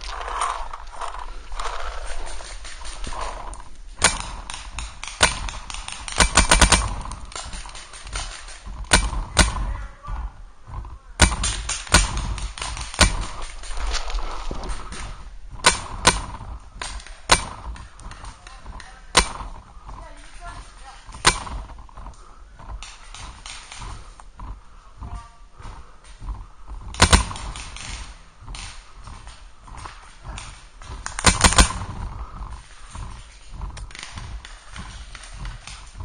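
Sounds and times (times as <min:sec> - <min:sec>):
paintball markers firing: 0:00.1 - 0:09.8, 0:11.2 - 0:13.9, 0:15.6 - 0:19.6.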